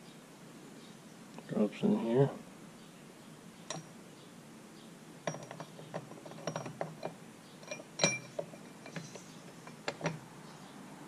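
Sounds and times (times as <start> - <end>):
metal parts clicking and clinking: 5.3 - 10.2.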